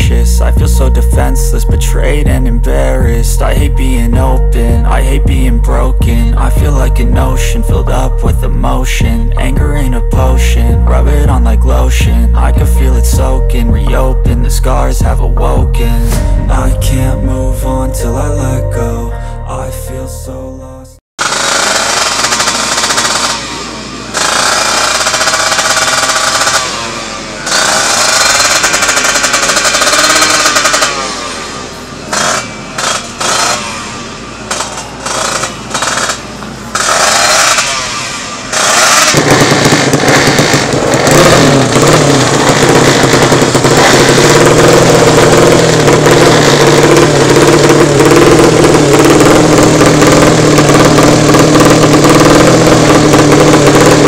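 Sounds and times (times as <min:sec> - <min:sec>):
motorcycle engines revving: 0:21.2 - 0:54.0.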